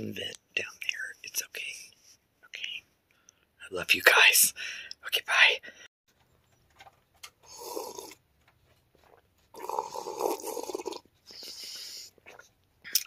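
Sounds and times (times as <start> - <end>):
person sipping from a mug: 7.4 - 8.2, 9.6 - 13.0.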